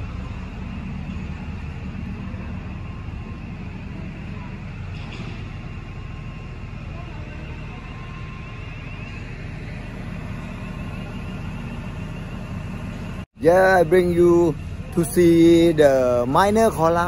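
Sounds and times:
diesel machinery rumbling: 0:00.0 - 0:17.0
faint high chatter: 0:02.1 - 0:11.8.

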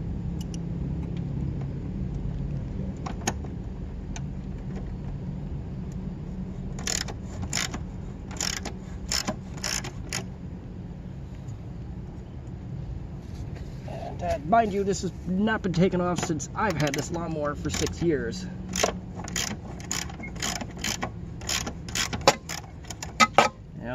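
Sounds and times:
steady low hum: 0:00.0 - 0:23.9
socket ratchet clicking: 0:06.8 - 0:10.3, 0:16.2 - 0:23.5.

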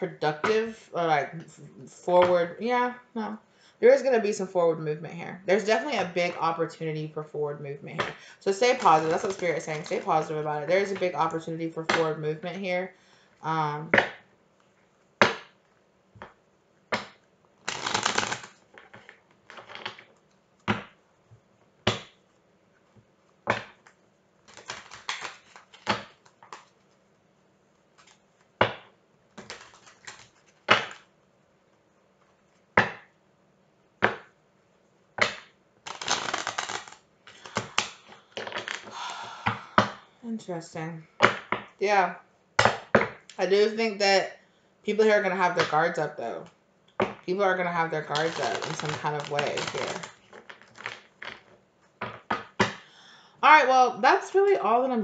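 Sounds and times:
cards shuffling: 0:08.0 - 0:11.0, 0:17.0 - 0:21.0, 0:21.9 - 0:27.1, 0:27.8 - 0:28.8, 0:29.4 - 0:31.1, 0:35.2 - 0:40.0, 0:48.0 - 0:51.6
cards tapping and slapping: 0:15.2 - 0:15.6, 0:16.2 - 0:21.0, 0:21.9 - 0:22.2, 0:23.5 - 0:26.8, 0:28.0 - 0:31.1, 0:35.2 - 0:40.0, 0:48.2 - 0:52.8.

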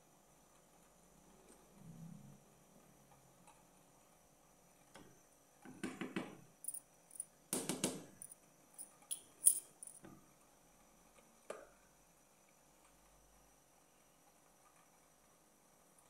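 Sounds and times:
light clinks: 0:08.2 - 0:10.0.

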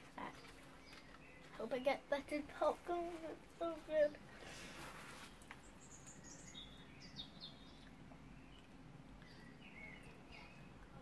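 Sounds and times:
faint small bird chirps: 0:05.2 - 0:11.0.

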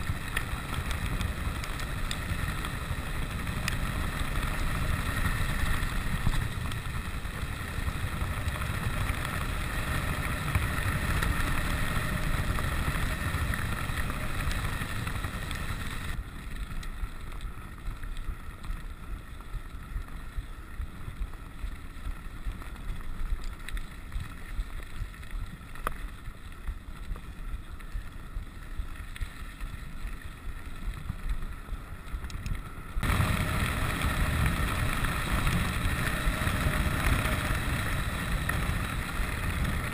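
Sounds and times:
bike tyres rolling on gravel: 0:00.0 - 0:39.9
wind on microphone: 0:32.6 - 0:39.9.

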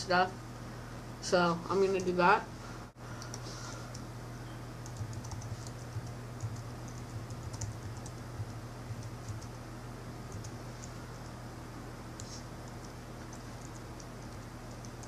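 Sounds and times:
steady low hum: 0:00.0 - 0:15.0
computer keyboard key clicks: 0:04.8 - 0:08.2.

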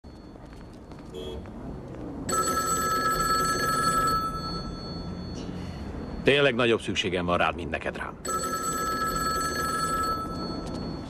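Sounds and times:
payphone bell ringing: 0:02.3 - 0:06.5, 0:08.2 - 0:11.0.

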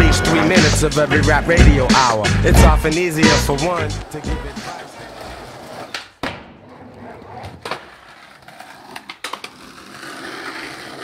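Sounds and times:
skateboard wheels rolling on concrete: 0:00.0 - 0:11.0
skateboard clacking on ground: 0:04.0 - 0:11.0.

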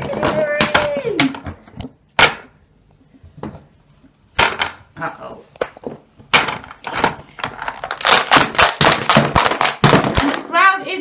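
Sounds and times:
plastic toy figures clattering: 0:05.6 - 0:10.5.

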